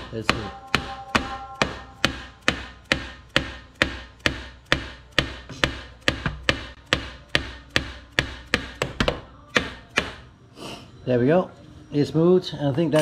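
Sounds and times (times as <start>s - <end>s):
hammer striking metal shaft: 0.0s - 10.2s.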